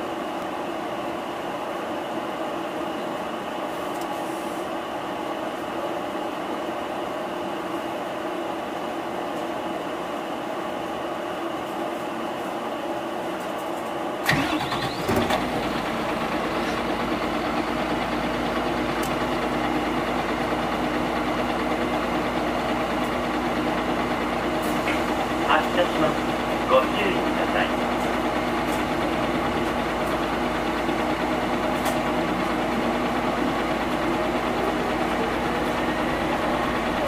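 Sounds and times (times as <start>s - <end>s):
diesel engine starting and idling: 14.2s - 37.0s.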